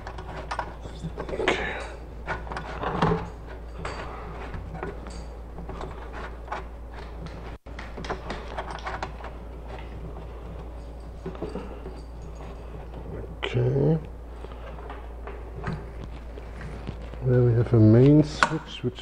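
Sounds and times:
steady low hum: 0.0s - 19.0s
cables and plugs clicking: 18.0s - 18.7s.

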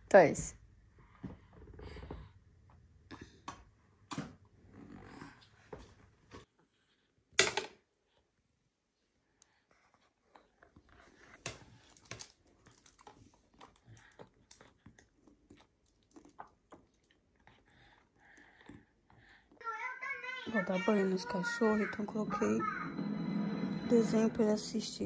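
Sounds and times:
toddler chewing: 9.8s - 19.8s.

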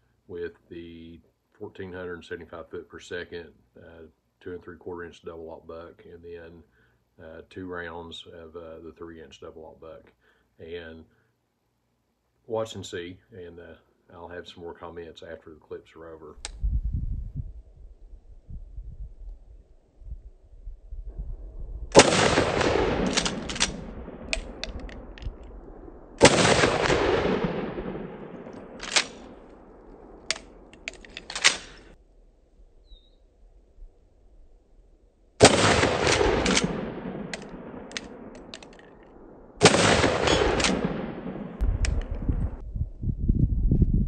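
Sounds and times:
shotgun blasts: 21.9s - 32.0s, 35.4s - 38.8s, 39.6s - 42.6s.

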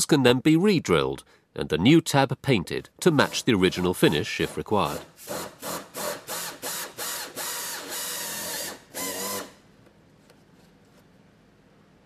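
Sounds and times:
power drill running: 5.3s - 9.5s.

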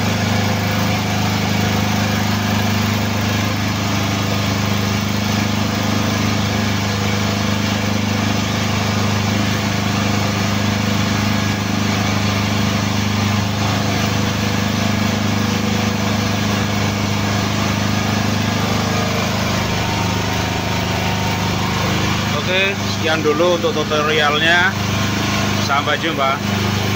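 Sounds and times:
hydraulic power unit humming: 0.0s - 26.9s.

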